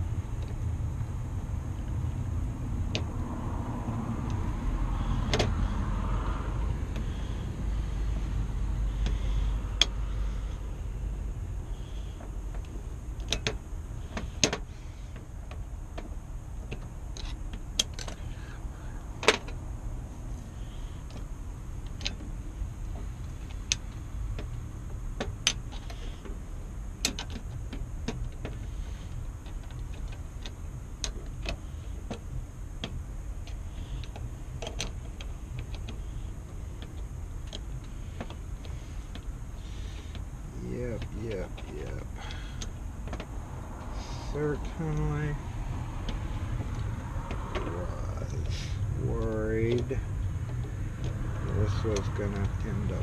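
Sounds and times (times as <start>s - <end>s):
low rumble: 0.0s - 25.0s.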